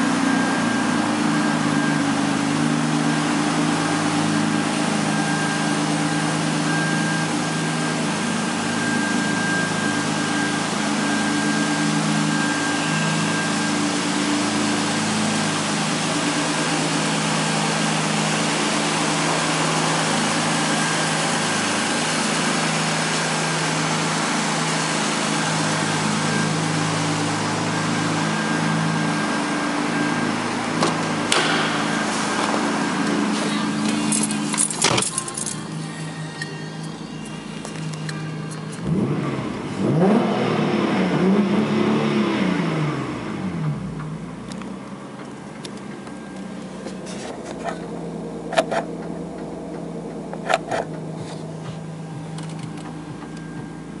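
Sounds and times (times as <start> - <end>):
car engine idling: 0.0 - 54.0
sharp knock: 31.3 - 31.9.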